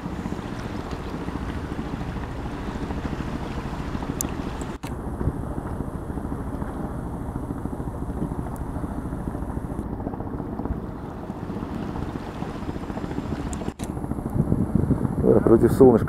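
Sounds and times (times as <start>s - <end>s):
boat engine running: 0.0s - 16.0s
wind noise on microphone: 0.0s - 16.0s.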